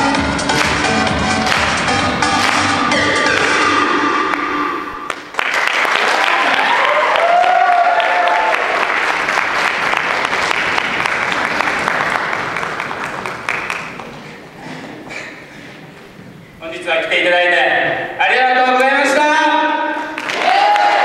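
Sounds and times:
dance music: 0:00.0 - 0:05.3
audience applause: 0:00.6 - 0:03.6, 0:05.1 - 0:14.6, 0:20.2 - 0:21.0.

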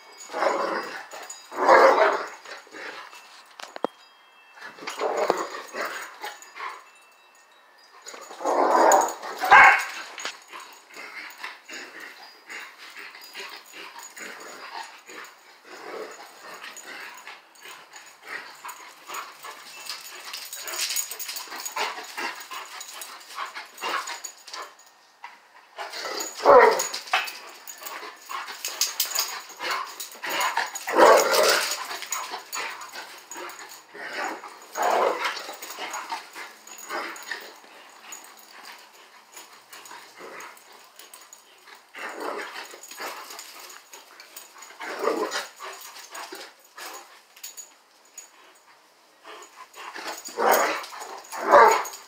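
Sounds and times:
dogs barking and yipping: 0:00.0 - 0:03.9, 0:04.6 - 0:07.1, 0:07.8 - 0:48.6, 0:49.3 - 0:52.0
dogs scuffling: 0:00.0 - 0:04.0, 0:04.6 - 0:06.9, 0:08.0 - 0:48.6, 0:49.3 - 0:52.0.

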